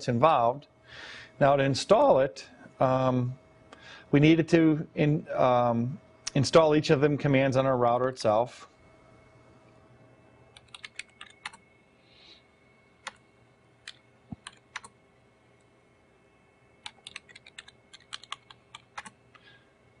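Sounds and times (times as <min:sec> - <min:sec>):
computer keyboard clicks: 0:10.6 - 0:11.6, 0:13.8 - 0:15.0, 0:16.8 - 0:19.2.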